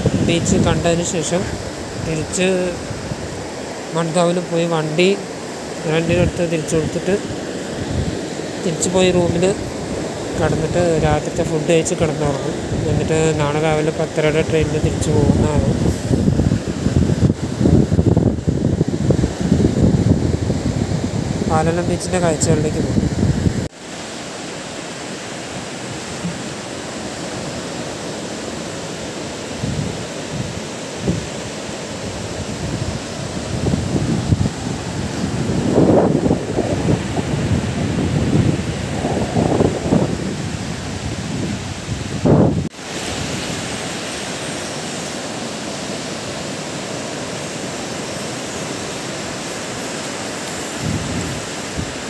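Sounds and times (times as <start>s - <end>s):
waves breaking on beach: 0.0s - 52.0s.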